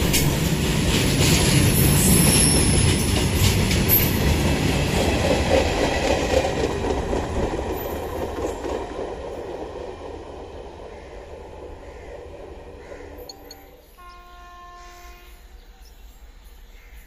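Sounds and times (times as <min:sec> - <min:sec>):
freight train wheels clattering: 0:00.0 - 0:10.4.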